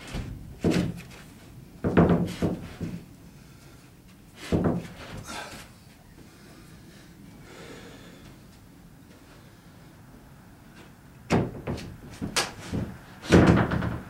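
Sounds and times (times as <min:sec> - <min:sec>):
plywood sheet knocking on joists: 0:00.0 - 0:01.0, 0:01.8 - 0:03.0, 0:04.4 - 0:05.1, 0:11.3 - 0:14.0.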